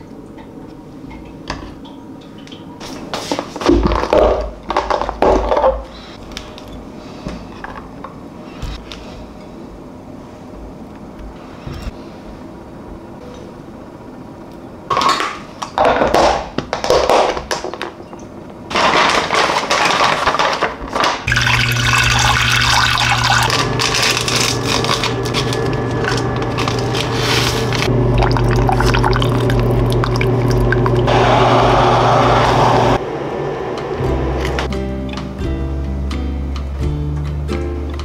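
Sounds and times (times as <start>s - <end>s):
steady low hum: 0.0s - 16.8s, 21.3s - 36.8s
water pouring into saucepan: 21.3s - 24.0s.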